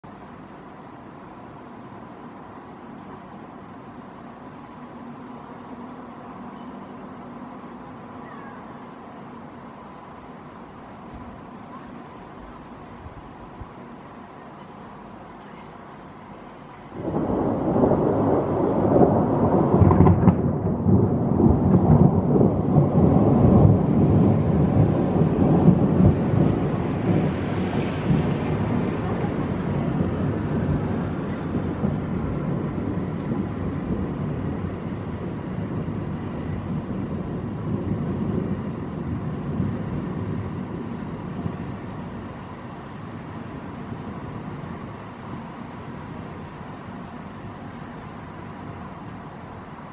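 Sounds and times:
rolling thunder rumble: 16.0 - 49.9.

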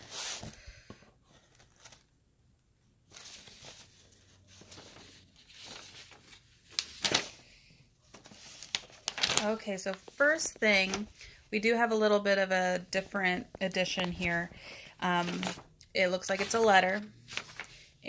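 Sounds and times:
paper packaging tearing and crinkling: 3.2 - 7.4, 8.2 - 10.2.

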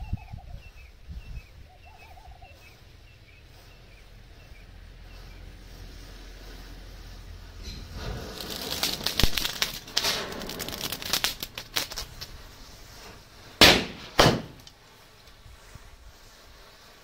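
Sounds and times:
firecrackers fizzing and popping: 5.1 - 17.0
sharp firecracker bangs: 7.6 - 14.8.

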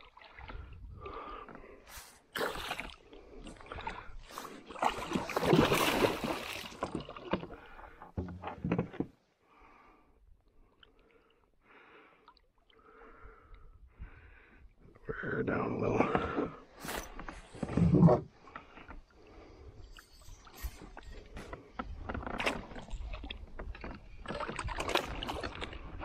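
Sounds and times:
fish thrashing and splashing: 3.6 - 7.6.

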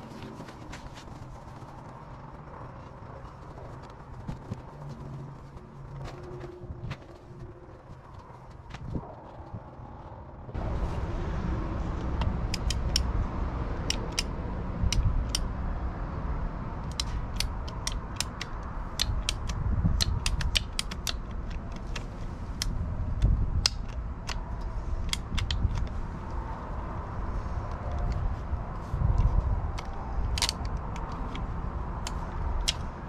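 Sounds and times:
sharp clicks and creaks: 0.0 - 10.6, 11.9 - 15.6, 16.8 - 33.0
low rumble: 0.0 - 17.8.

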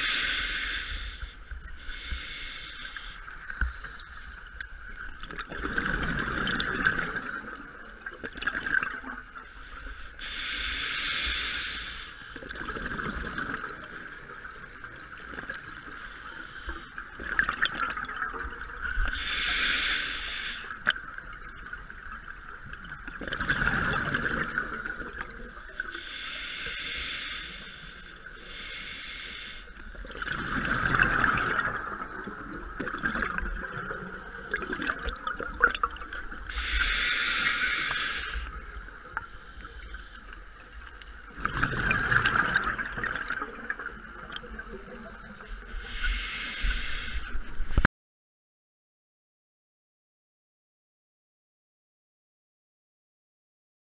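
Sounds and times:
hissing inhale through regulator: 0.0 - 4.6, 9.5 - 12.5, 19.0 - 20.9, 25.7 - 30.0, 36.4 - 40.8, 45.5 - 47.8
exhaled bubbles gushing: 5.2 - 9.2, 23.1 - 25.5, 30.0 - 36.4, 41.3 - 45.1.

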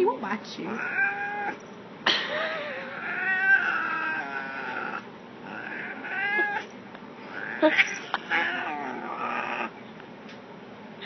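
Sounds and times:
cat yowling angrily: 0.8 - 1.6, 2.6 - 6.7, 7.3 - 9.8.

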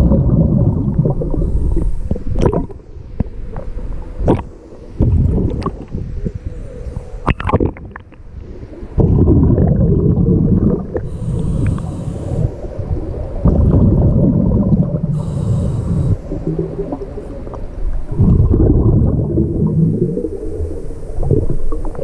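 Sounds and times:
exhaled air bubbling underwater: 0.0 - 22.0
regulator inhalation hiss: 1.4 - 2.2, 11.1 - 12.8, 15.1 - 16.8.

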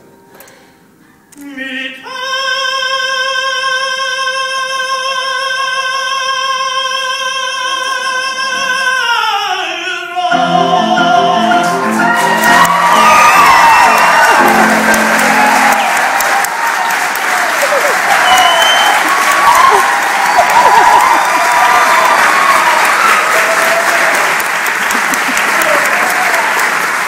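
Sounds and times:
operatic tenor singing high note: 10.3 - 16.1
piano chords: 10.3 - 17.2
audience applause and cheering: 10.4 - 27.0.

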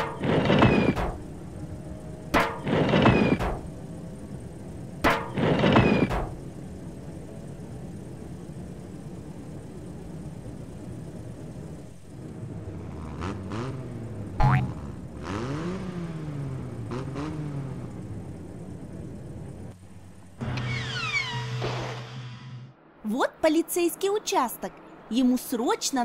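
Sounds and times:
engine revving: 0.0 - 1.3, 12.2 - 22.7
truck engine hum: 0.0 - 26.0.

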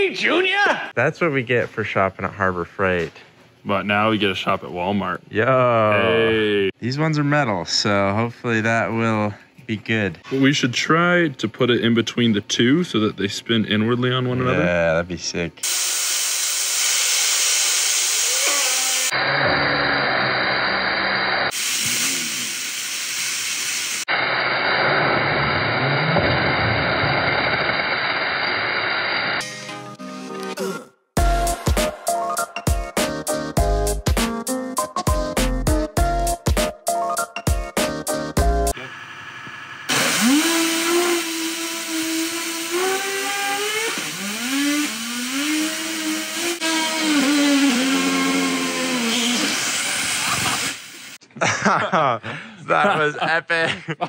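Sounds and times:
waterjet stream hissing: 15.6 - 29.4, 39.9 - 51.2
spinning wheels whining: 39.0 - 50.9.

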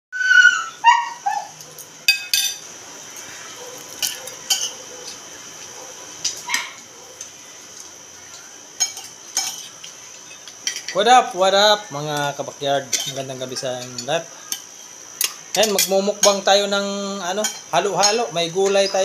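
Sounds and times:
high falling yelps: 0.1 - 1.7, 6.4 - 7.2
dishes clinking: 2.1 - 2.6, 3.9 - 5.2, 8.3 - 11.1, 12.9 - 16.5, 17.4 - 19.0.

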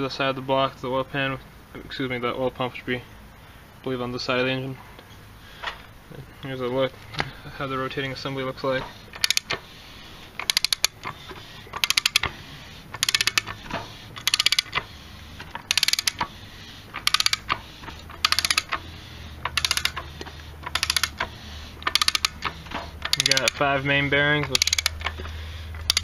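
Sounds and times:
ratchet wrench clicking: 9.1 - 9.6, 10.4 - 13.6, 14.2 - 16.3, 16.9 - 26.0.

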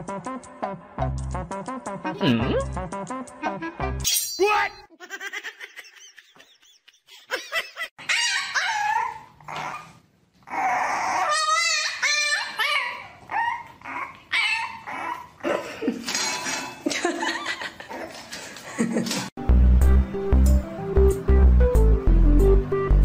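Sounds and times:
puppy whining and yelping: 8.0 - 15.4.

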